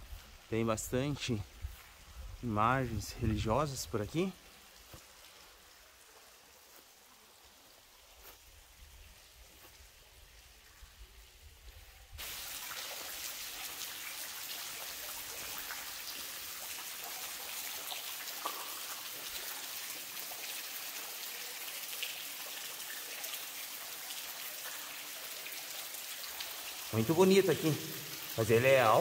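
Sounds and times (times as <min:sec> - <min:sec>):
waterfall splashing: 0:12.2 - 0:29.0.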